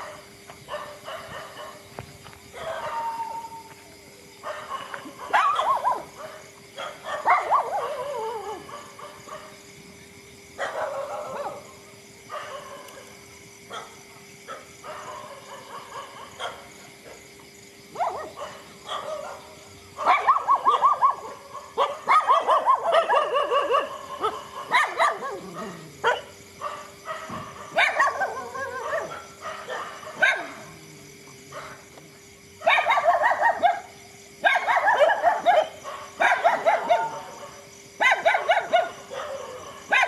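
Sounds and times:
dogs barking: 0.0 - 1.9, 2.5 - 3.6, 4.4 - 9.6, 10.6 - 13.1, 13.7 - 17.3, 17.9 - 31.9, 32.6 - 40.0.

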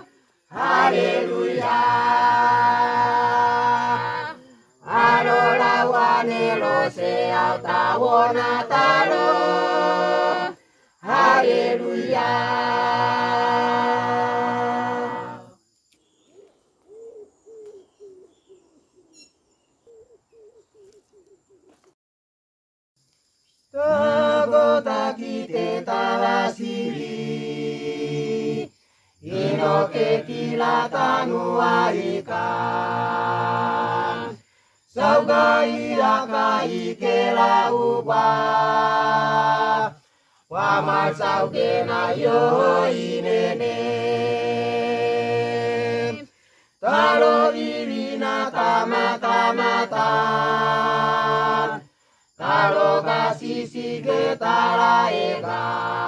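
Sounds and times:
mixed choir singing: 0.0 - 15.6, 23.8 - 56.0.

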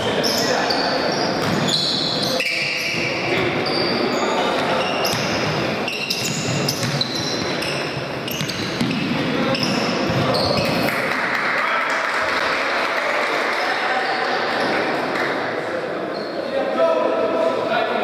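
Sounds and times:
short high squeaks: 0.2 - 5.3, 5.9 - 8.8.

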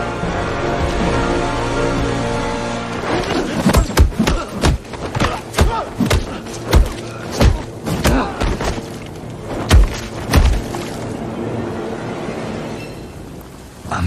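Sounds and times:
heavy punches and body blows: 3.2 - 11.0.

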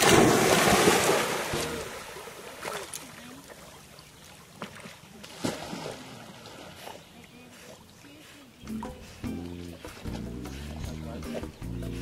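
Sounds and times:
dog splashing into pond: 0.0 - 7.9
water sloshing: 0.0 - 12.0.

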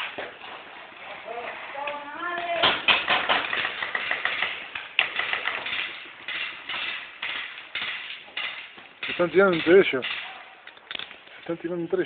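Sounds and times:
paintball markers firing: 2.6 - 10.9.

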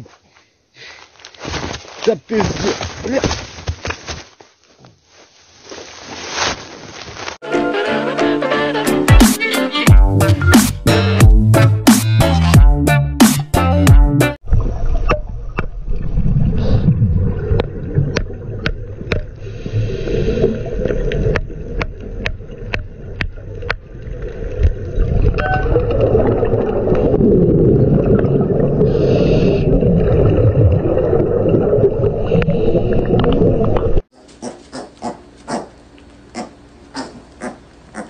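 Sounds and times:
exhaled bubbles gurgling underwater: 14.4 - 34.0.

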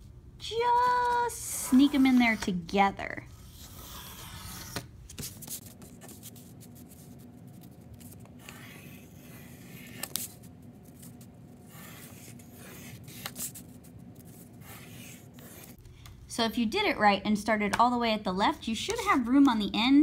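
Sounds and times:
pencil scratching on paper: 0.8 - 2.6, 3.4 - 15.8.

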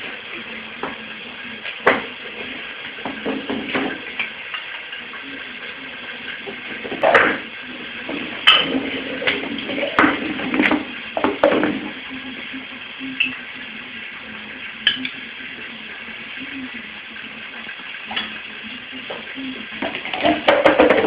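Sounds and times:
food bowl knocking on tiled floor: 19.8 - 21.0.

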